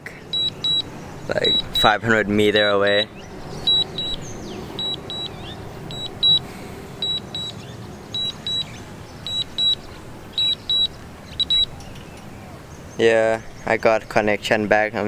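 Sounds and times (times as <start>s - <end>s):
remote controller double beeps: 0.3s - 3.1s, 3.7s - 4.2s, 4.8s - 6.4s, 7.0s - 7.6s, 8.2s - 11.7s.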